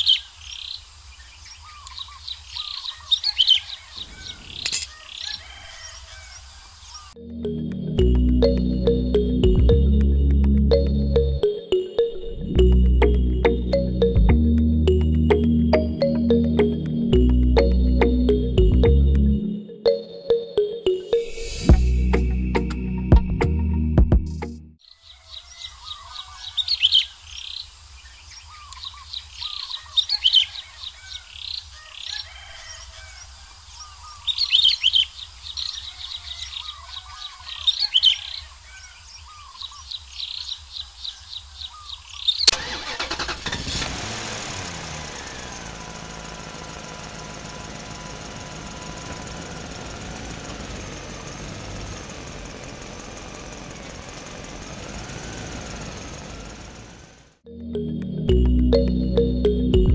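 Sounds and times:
small birds chirping: 0:00.0 - 0:07.2, 0:24.8 - 0:42.5
motor hum: 0:43.6 - 0:59.7.

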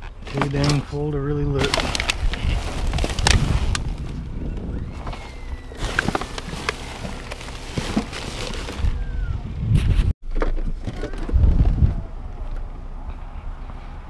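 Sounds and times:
plastic trash bags rustling: 0:00.0 - 0:09.2.

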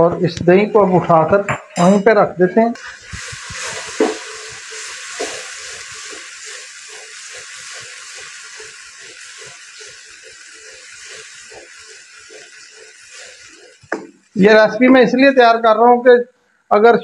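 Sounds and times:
wooden spatula scraping a wok: 0:02.8 - 0:14.3
chicken sizzling in a wok: 0:02.8 - 0:14.4.

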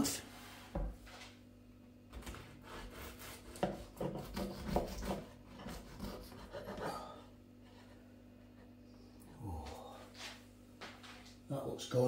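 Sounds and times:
bread knife sawing crisp pastry: 0:02.3 - 0:07.2.

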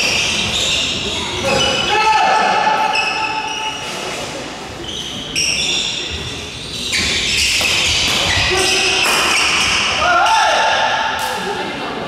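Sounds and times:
shoes squeaking on wooden floor: 0:04.8 - 0:09.9.

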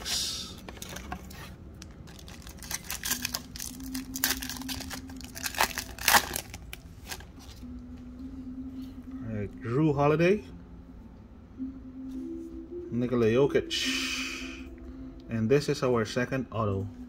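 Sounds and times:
wrapper crackling and crinkling: 0:00.8 - 0:07.6.

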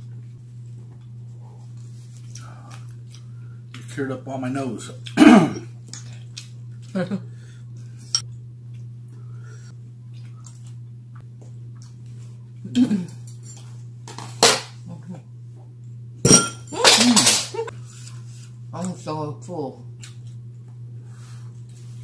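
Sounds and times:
steady low hum: 0:00.0 - 0:22.0
throaty vocal sounds: 0:05.2 - 0:05.7.

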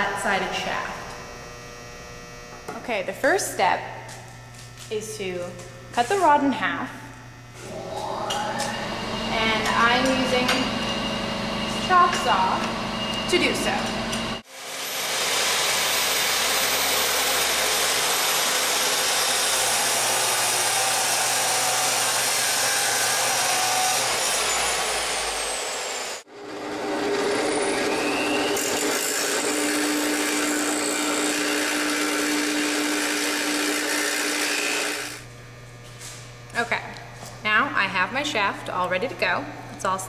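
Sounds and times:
chop saw cutting metal rod: 0:14.5 - 0:35.2.

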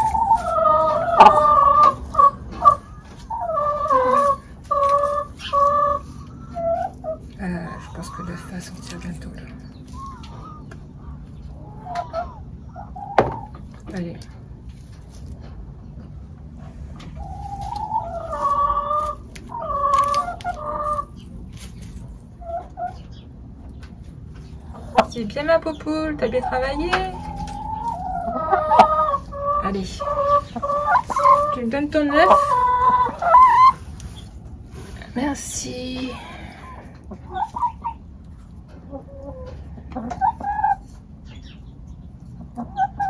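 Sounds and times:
hens calling: 0:00.0 - 0:14.0, 0:14.6 - 0:43.0.

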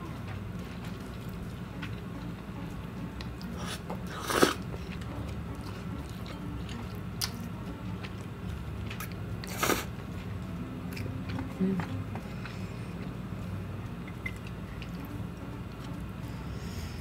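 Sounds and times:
slurping noodles: 0:03.5 - 0:04.9, 0:09.4 - 0:09.9
soft chewing clicks: 0:10.2 - 0:16.0.

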